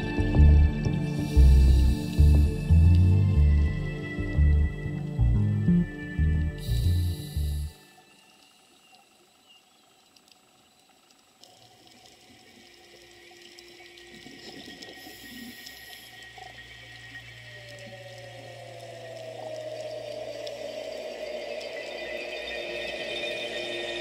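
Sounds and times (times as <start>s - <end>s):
slowly falling tone: 0.0s - 7.7s, 16.3s - 24.0s
steady low hum: 0.0s - 7.8s
underwater hiss of water: 0.9s - 3.2s, 6.6s - 9.3s, 11.4s - 24.0s.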